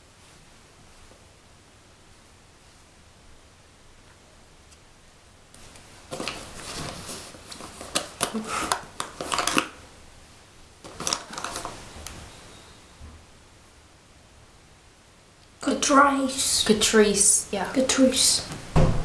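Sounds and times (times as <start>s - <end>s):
plastic items clicking and rustling: 5.6s - 9.8s, 10.8s - 11.8s.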